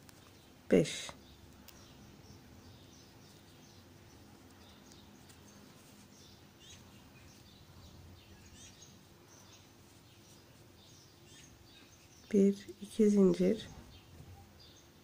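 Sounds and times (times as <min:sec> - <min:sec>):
faint bird chirps: 0:01.0 - 0:12.8.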